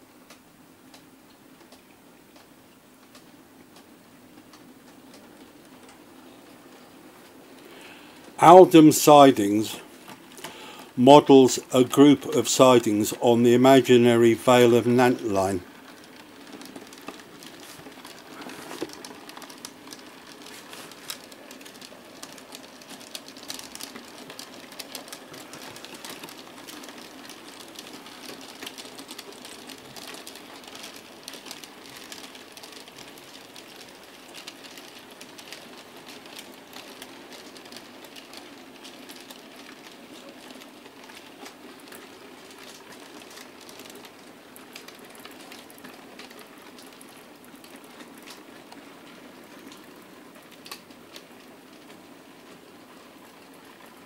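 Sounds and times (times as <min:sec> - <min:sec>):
model train wheels clicking: 0:07.6 - 0:52.7.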